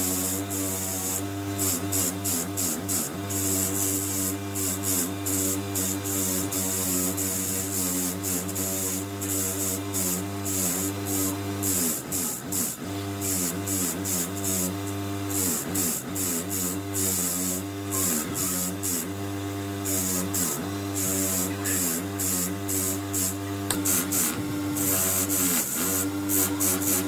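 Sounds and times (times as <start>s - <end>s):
electric motor hum: 0.0s - 27.0s
wire wheel scrubbing metal: 19.8s - 27.0s.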